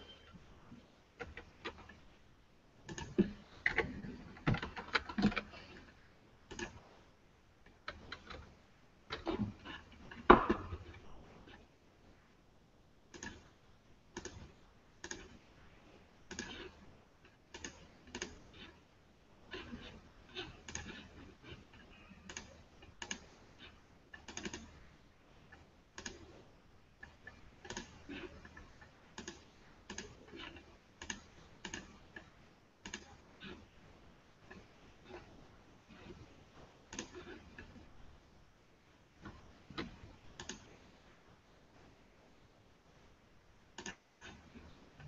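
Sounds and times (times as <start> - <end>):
typing on computer keyboard: 2.9 - 5.8, 6.5 - 6.8, 13.1 - 13.5, 14.2 - 15.4, 16.3 - 16.8, 17.5 - 18.7, 22.2 - 24.8, 25.5 - 26.4, 27.0 - 33.6, 39.3 - 40.6, 43.8 - 44.4.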